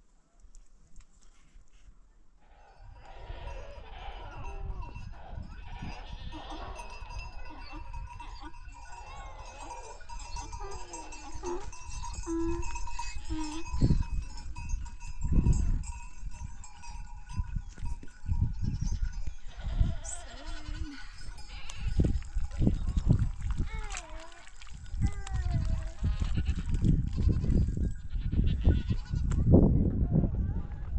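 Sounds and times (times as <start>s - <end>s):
goats bleating: 3.0s - 14.1s, 18.6s - 24.4s, 25.1s - 29.3s.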